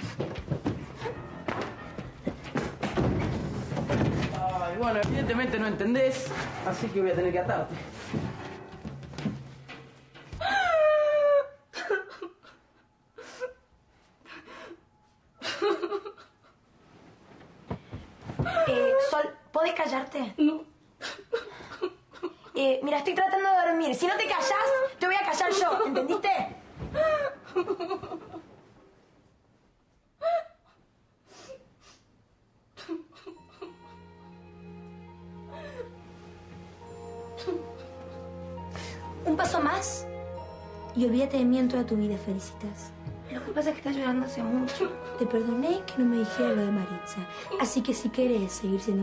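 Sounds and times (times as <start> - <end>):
girl crying out: 10.4 - 11.7, 18.5 - 19.3
girl whimpering and sobbing: 10.4 - 13.7, 18.4 - 19.4, 26.9 - 27.8, 32.8 - 34.3, 35.3 - 36.2, 36.9 - 39.3.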